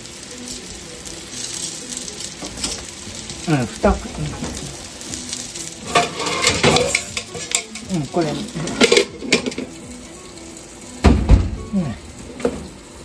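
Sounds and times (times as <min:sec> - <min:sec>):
fish sizzling in a frying pan: 0:00.0 - 0:13.0
utensil clinking against a pan: 0:05.8 - 0:09.8.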